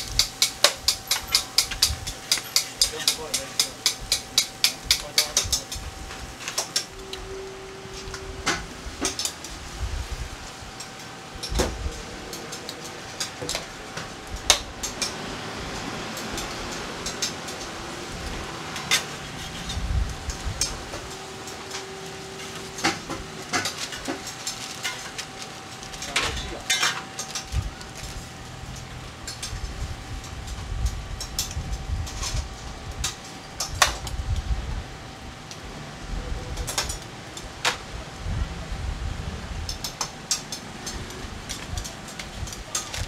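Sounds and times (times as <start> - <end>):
metal utensils clinking on steel: 0.0 - 5.8, 9.0 - 9.5, 16.2 - 17.7, 20.6 - 27.5
steady sizzle: 0.0 - 36.0
faint steady hum: 0.0 - 43.0.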